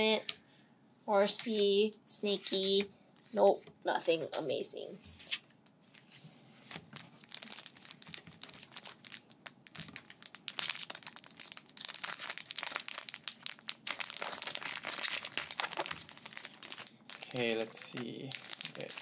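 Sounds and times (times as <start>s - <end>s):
foil wrapper crinkling: 5.9s - 19.0s.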